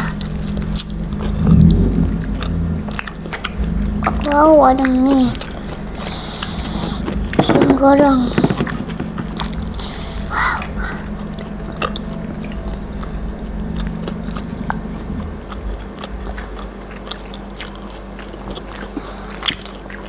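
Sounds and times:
people chewing crispy snacks: 9.8 - 20.0.

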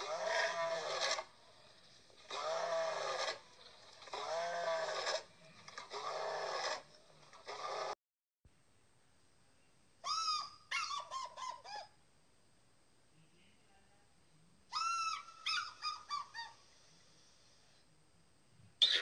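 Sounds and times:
eagle calling high piping notes: 10.0 - 11.9.

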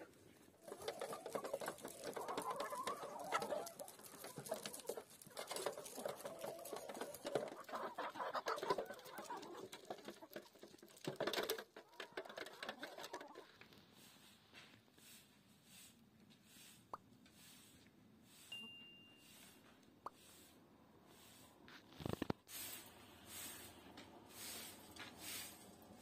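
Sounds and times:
chickens clucking: 0.0 - 14.1.

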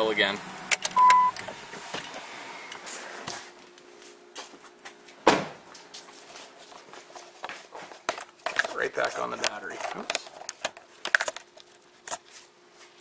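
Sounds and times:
rustling and handling noise: 1.8 - 13.0
truck door thump: 5.2 - 5.6.

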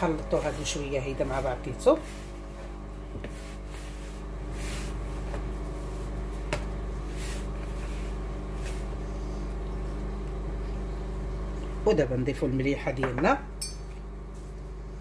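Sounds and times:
hand scraping dough in plastic bowl: 0.0 - 2.6
steady low hum: 0.0 - 15.0.

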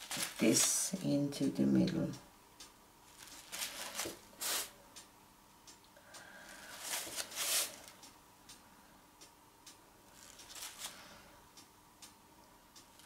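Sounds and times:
paper towel rustling and crinkling: 0.0 - 0.9, 3.1 - 4.7, 6.7 - 7.9.

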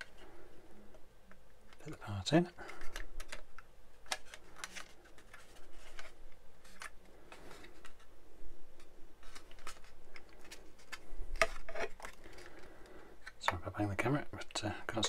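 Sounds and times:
plastic parts clicking: 2.7 - 6.1.

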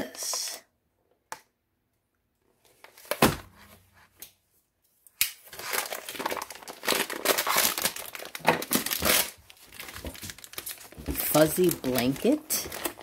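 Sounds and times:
plastic bag crinkling: 5.4 - 13.0.

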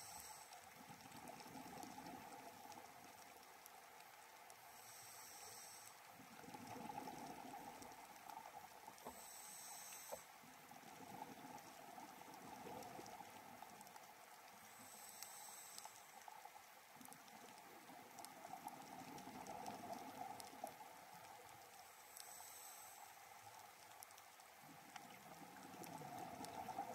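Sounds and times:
regulator inhalation hiss: 0.0 - 0.6, 4.7 - 6.0, 9.0 - 10.3, 14.7 - 16.3, 22.0 - 23.2.

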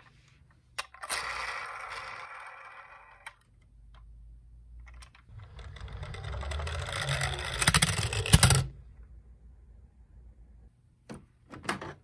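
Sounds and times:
toy car wheels rattling on wood: 5.3 - 8.7.

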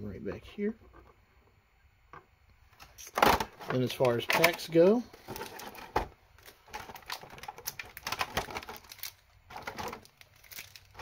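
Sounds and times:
packaging crinkling: 3.1 - 11.0.

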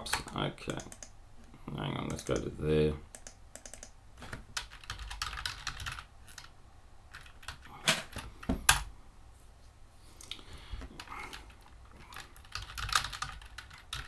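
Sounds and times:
keyboard typing: 0.0 - 1.1, 3.1 - 6.5, 7.1 - 8.9, 11.0 - 14.0.

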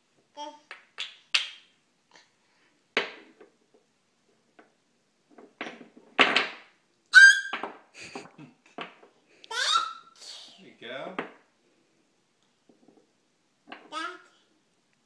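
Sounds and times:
toddler squealing: 7.2 - 7.6, 9.5 - 10.5.

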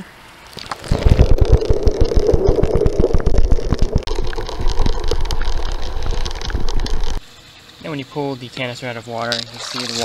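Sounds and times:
underwater water rush: 0.6 - 7.2.

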